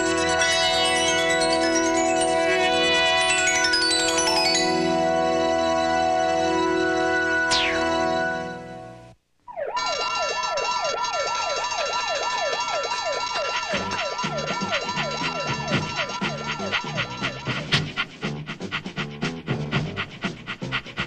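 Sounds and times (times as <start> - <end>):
warbling alarm siren: 0.0 - 8.8, 9.5 - 18.0
rising sweep: 7.4 - 8.4
held music chords: 13.3 - 21.0
pulsing bass beat: 13.7 - 21.0.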